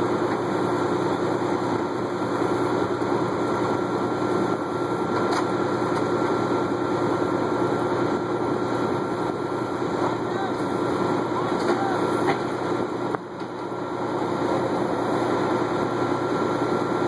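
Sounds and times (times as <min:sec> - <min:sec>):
diesel engines running: 0:00.0 - 0:17.0.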